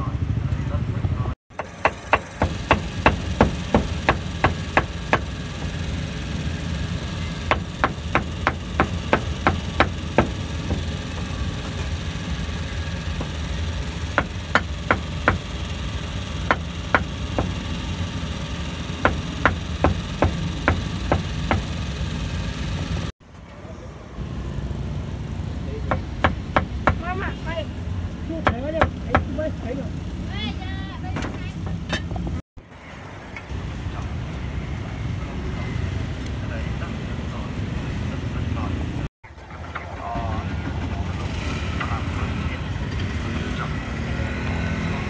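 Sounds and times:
low engine hum: 0:00.0 - 0:45.0
cleaver chopping on wooden block: 0:01.5 - 0:05.3, 0:07.5 - 0:10.9, 0:28.4 - 0:29.3.

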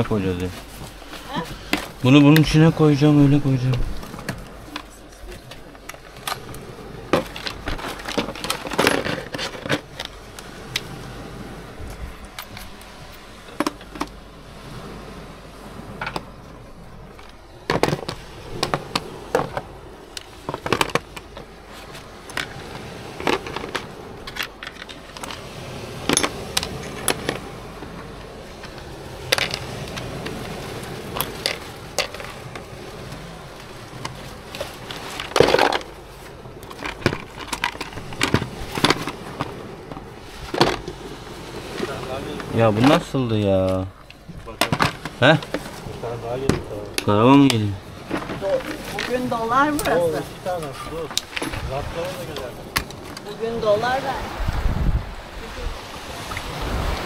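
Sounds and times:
objects clattering and knocking: 0:07.1 - 0:10.2, 0:17.2 - 0:19.7, 0:20.4 - 0:22.6, 0:29.3 - 0:30.4, 0:31.1 - 0:32.7, 0:34.0 - 0:36.0, 0:36.6 - 0:41.0, 0:44.4 - 0:45.8.

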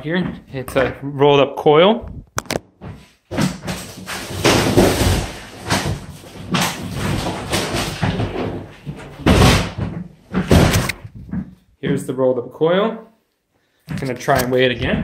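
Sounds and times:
plastic scraping and rustling: 0:02.0 - 0:11.6
mattress thuds: 0:02.8 - 0:11.6.

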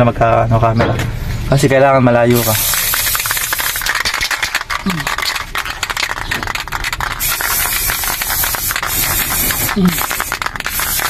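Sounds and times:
spray paint can hissing: 0:02.3 - 0:11.0.

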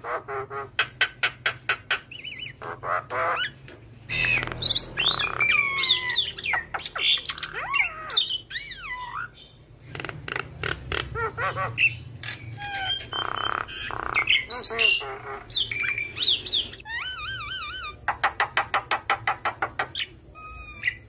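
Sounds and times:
bird singing varied song: 0:00.0 - 0:21.0.

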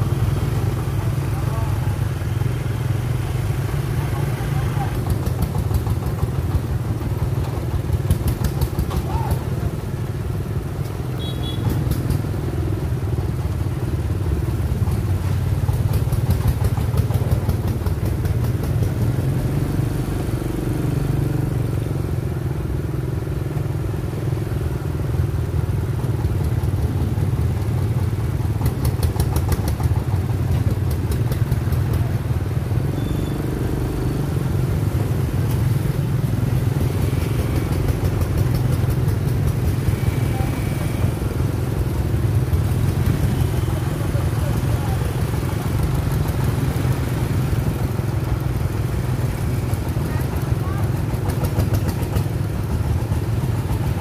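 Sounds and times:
road noise: 0:00.0 - 0:54.0
motorbike engines droning: 0:24.3 - 0:54.0.

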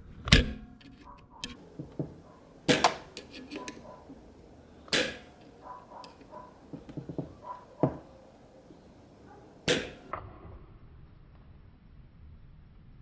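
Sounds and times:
sharp metallic snaps: 0:09.7 - 0:10.1.

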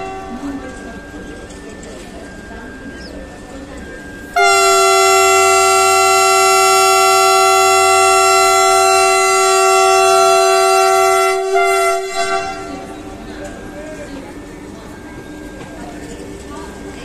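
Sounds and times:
train horn blast: 0:00.0 - 0:00.6, 0:04.4 - 0:13.1.

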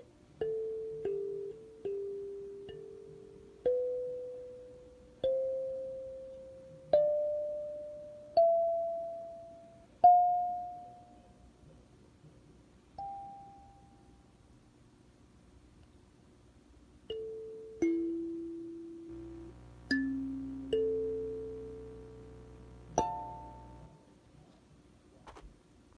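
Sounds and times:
kalimba notes: 0:00.0 - 0:11.2, 0:17.1 - 0:24.0.

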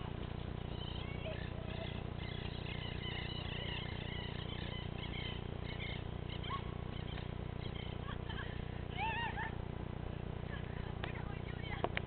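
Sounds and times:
crickets chirping: 0:00.0 - 0:09.5
steady low hum: 0:00.0 - 0:12.0.

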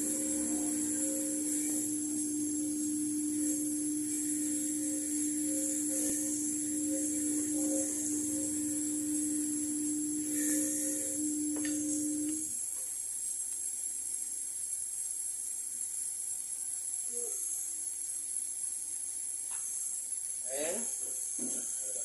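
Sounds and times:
polishing motor humming: 0:00.0 - 0:12.6.

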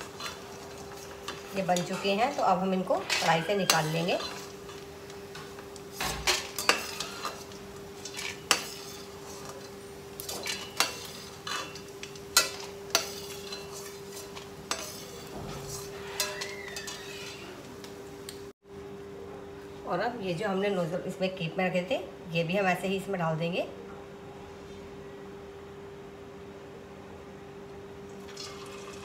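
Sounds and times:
metal spoon scraping a pan: 0:00.0 - 0:17.6
oil sizzling: 0:00.0 - 0:18.5, 0:28.2 - 0:29.0.

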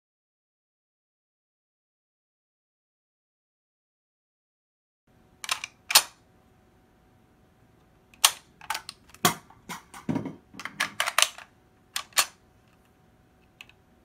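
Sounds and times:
rifle action metal clicks: 0:05.4 - 0:06.2, 0:08.2 - 0:09.2, 0:10.7 - 0:12.4.

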